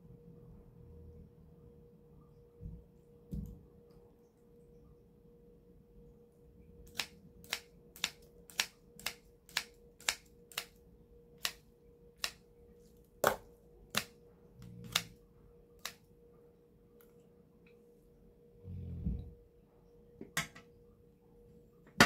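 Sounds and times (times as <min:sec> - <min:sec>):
faint steady hum: 0:00.0 - 0:22.0
scissors snipping: 0:06.9 - 0:10.8, 0:13.9 - 0:15.2.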